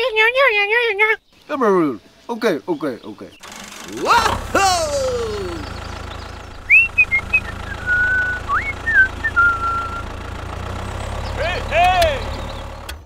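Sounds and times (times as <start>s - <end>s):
low engine rumble: 3.4s - 13.0s
person whistling: 6.7s - 10.1s.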